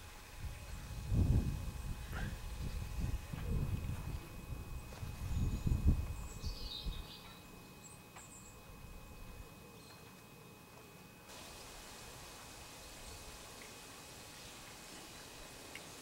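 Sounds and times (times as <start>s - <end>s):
birds chirping: 4.0s - 10.2s.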